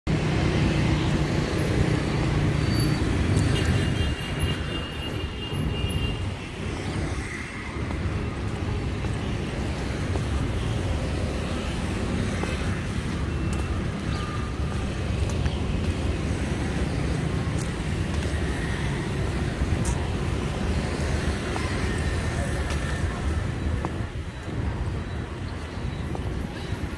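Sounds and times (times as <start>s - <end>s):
road traffic rumble: 0.1s - 26.9s.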